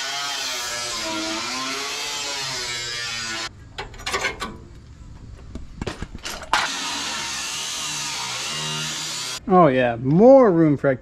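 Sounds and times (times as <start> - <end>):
angle grinder cutting sheet steel: 0.0 - 3.5, 6.6 - 9.4.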